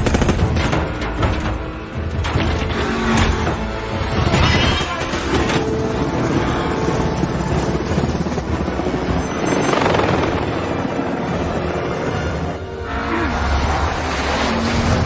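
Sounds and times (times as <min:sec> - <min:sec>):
vehicles running: 0:00.2 - 0:15.0
helicopter rotor and engine: 0:03.2 - 0:15.0.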